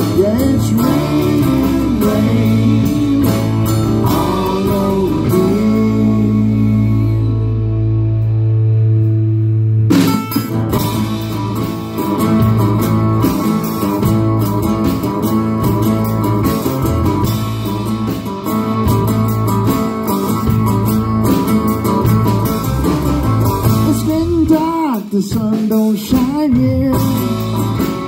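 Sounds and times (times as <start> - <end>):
bass line: 0.0 - 28.0
strummed guitars: 0.0 - 28.0.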